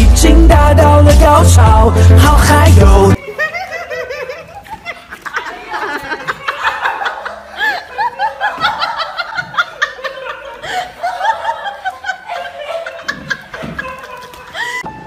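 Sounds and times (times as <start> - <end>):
person giggling: 3.2 - 15.0.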